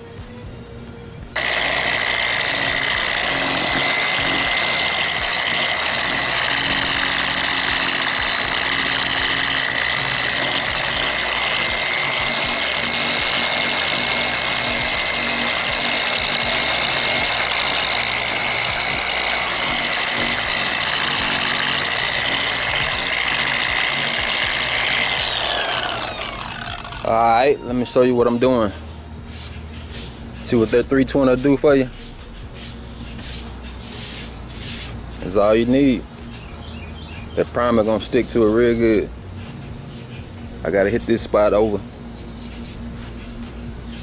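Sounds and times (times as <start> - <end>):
sander whining: 1.4 - 28.9.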